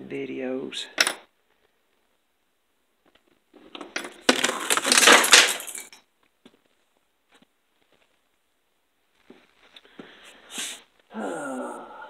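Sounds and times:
metal tools clattering: 0:03.9 - 0:06.0.

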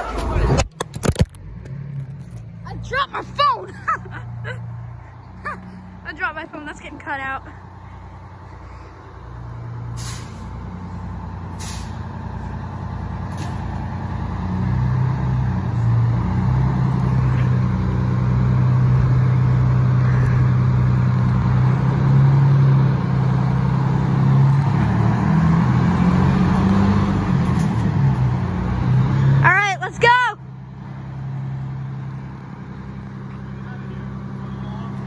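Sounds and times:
fire engine engine running: 0:00.0 - 0:35.0
air brake hisses: 0:09.9 - 0:10.5, 0:11.5 - 0:12.0.

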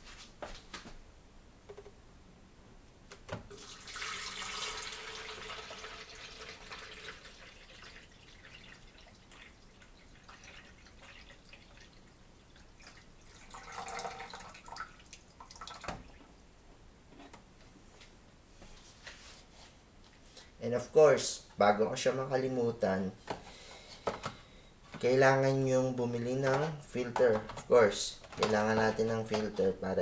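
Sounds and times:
water pouring: 0:03.5 - 0:16.3.

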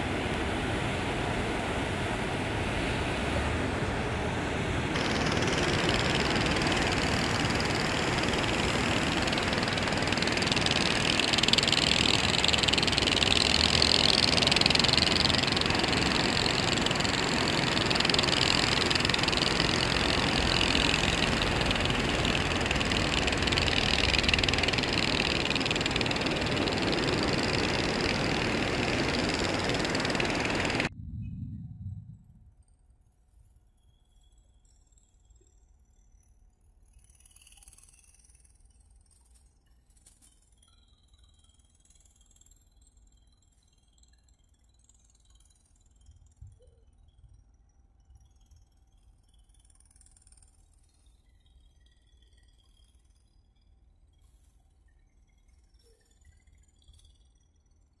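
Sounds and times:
boat engines running: 0:00.0 - 0:30.9.

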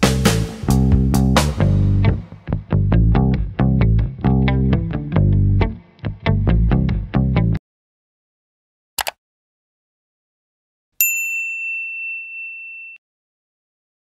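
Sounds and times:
guitar and bass music: 0:00.0 - 0:07.6
bell-like notification ding: 0:11.0 - 0:13.0.

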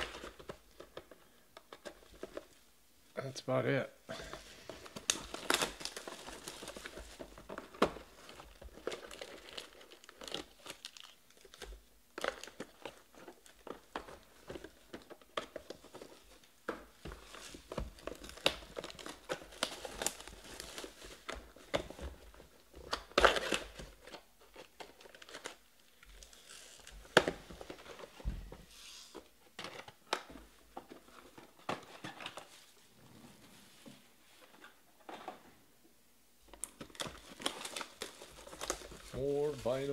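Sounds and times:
plastic shrink wrap crinkling and tearing: 0:04.2 - 0:16.4, 0:17.0 - 0:28.1, 0:36.5 - 0:39.9.

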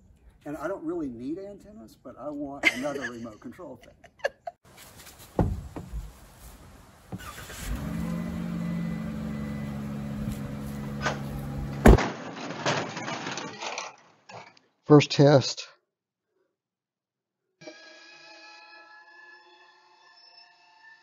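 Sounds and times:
knock: 0:05.4 - 0:06.0
loud thump: 0:05.4 - 0:06.1, 0:11.0 - 0:12.9
van engine starting and idling: 0:07.1 - 0:12.0.

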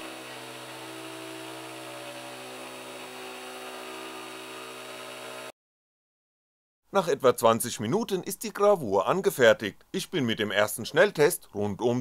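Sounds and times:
router spindle motor humming: 0:00.0 - 0:05.5.

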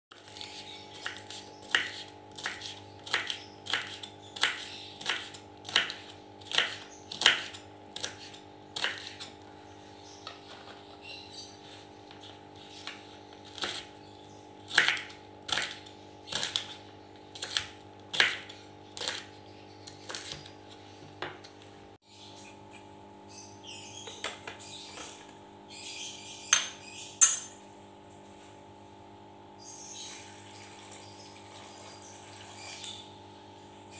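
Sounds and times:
knife chopping on wooden board: 0:00.3 - 0:09.3, 0:14.7 - 0:19.3.

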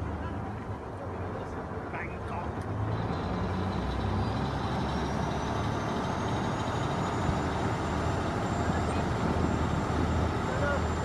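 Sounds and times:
boat engine running: 0:05.6 - 0:11.0.

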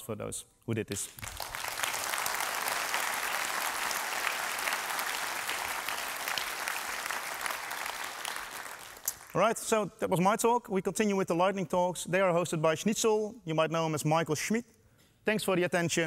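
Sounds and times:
audience applause: 0:01.2 - 0:09.4.

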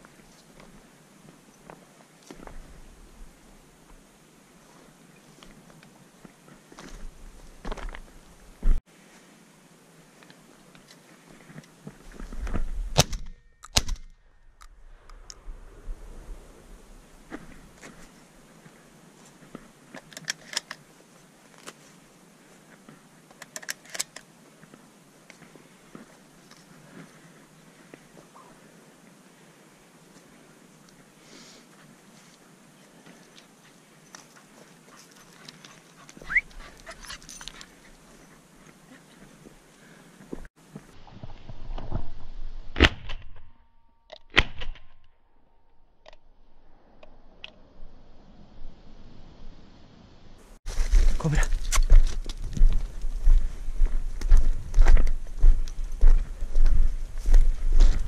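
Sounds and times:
footsteps on loose stones: 0:06.7 - 0:08.8, 0:50.7 - 0:58.0.

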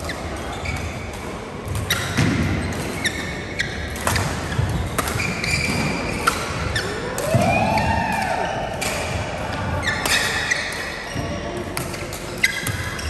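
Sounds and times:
shoes squeaking on floor: 0:00.0 - 0:07.0, 0:09.8 - 0:11.6, 0:12.3 - 0:13.0
racket striking shuttlecock: 0:01.1 - 0:07.4.

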